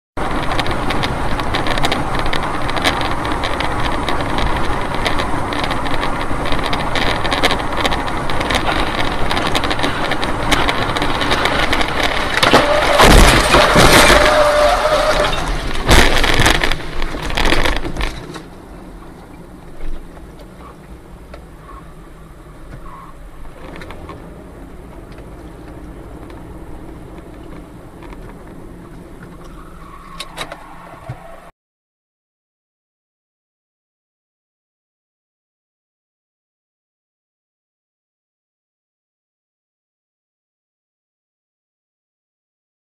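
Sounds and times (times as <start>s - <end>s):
road and wind noise in car: 0.2s - 31.5s.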